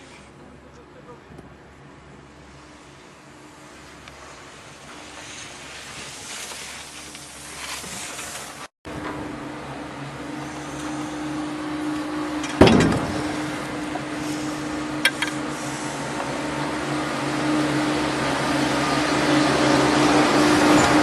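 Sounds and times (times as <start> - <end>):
chairlift machinery humming: 0.0 - 21.0
chairlift clunk: 11.8 - 15.6.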